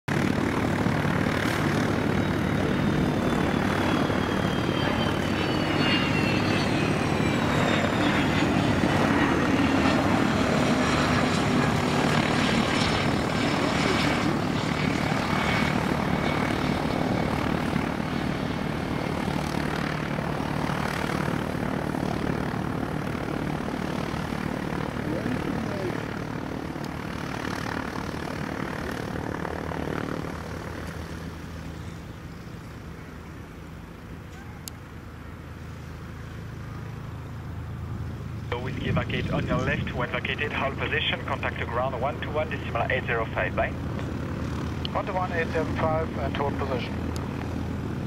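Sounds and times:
jet engine roar: 0:00.4 - 0:32.0, 0:35.1 - 0:48.0
high whines falling in pitch: 0:02.2 - 0:08.8.

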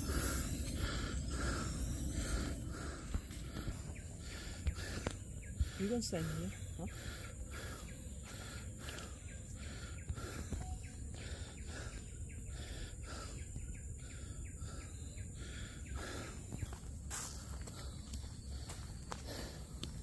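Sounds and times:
low rumble: 0:00.0 - 0:07.6
insects chirping: 0:00.0 - 0:20.0.

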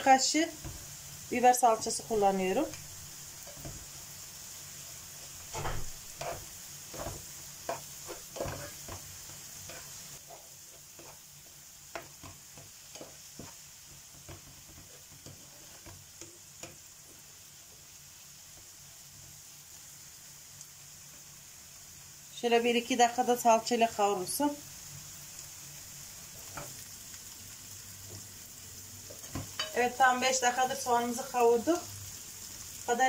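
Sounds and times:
onions sizzling in oil: 0:00.0 - 0:33.0
spatula scraping frying pan: 0:05.3 - 0:16.8.

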